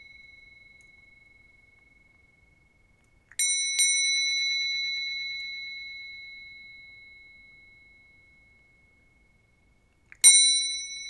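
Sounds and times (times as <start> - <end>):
hand bell ringing: 3.4 - 8.9, 10.2 - 11.0.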